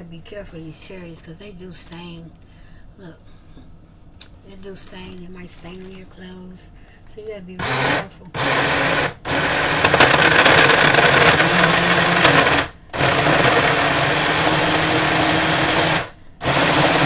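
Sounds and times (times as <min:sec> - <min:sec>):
blender motor running: 0:07.6 - 0:17.0.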